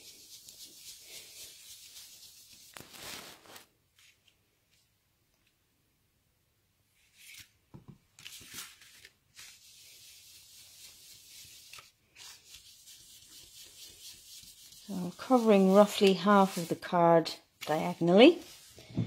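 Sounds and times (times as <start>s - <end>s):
brush rubbing on card: 0.0s - 3.7s, 9.4s - 18.9s
paper rustling: 0.0s - 4.9s, 7.0s - 17.0s, 17.6s - 18.9s.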